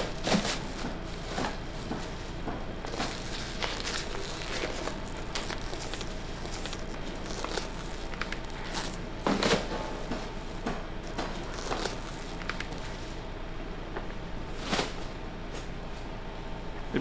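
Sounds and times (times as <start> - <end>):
steady low hum: 0.0 - 17.0
plastic crinkling and rustling: 2.8 - 9.7, 11.1 - 13.0.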